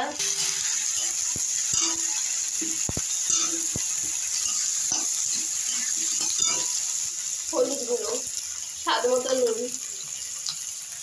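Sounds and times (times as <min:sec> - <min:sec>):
food sizzling in oil: 0:00.0 - 0:11.0
metal spatula scraping pan: 0:00.2 - 0:07.1.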